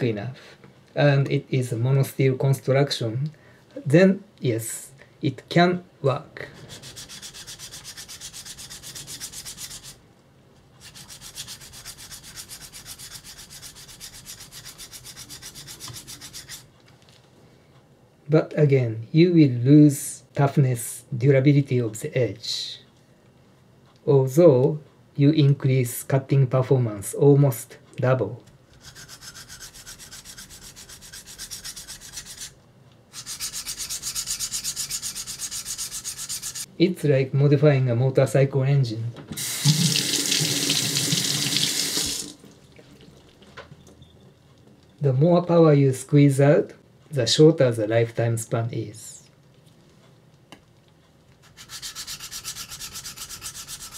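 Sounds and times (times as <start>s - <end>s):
knife sharpening on whetstone: 28.8s - 32.5s, 33.2s - 36.7s, 51.5s - 53.9s.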